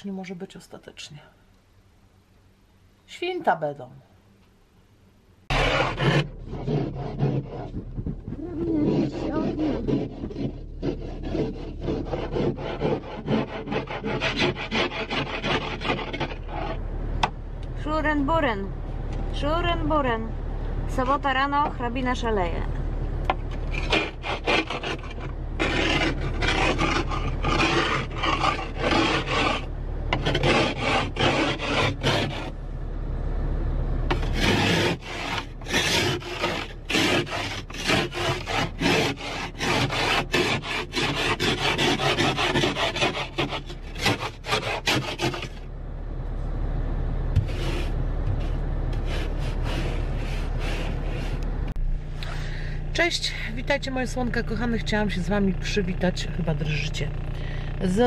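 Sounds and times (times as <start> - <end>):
low steady hum: 0.0 - 58.0
ice scraper scraping windscreen: 5.5 - 16.8, 23.5 - 32.6, 34.1 - 45.6, 47.4 - 51.4.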